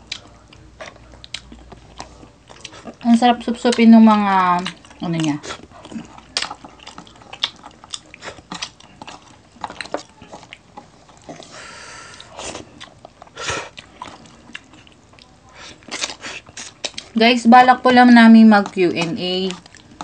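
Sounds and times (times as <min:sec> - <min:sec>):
chewing: 0:00.0 - 0:20.0.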